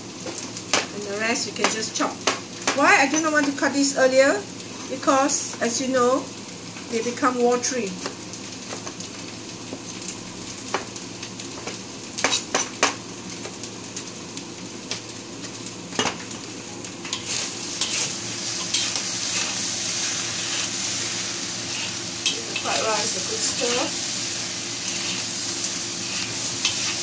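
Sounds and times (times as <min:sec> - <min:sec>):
fried rice sizzling in wok: 0:00.0 - 0:27.0
metal spatula scraping wok: 0:17.1 - 0:24.0, 0:24.7 - 0:27.0.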